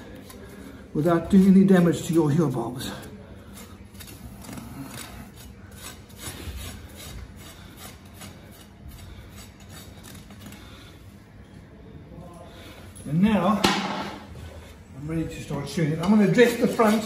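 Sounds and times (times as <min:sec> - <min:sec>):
rasp scraping horse hoof: 0:03.5 - 0:10.6.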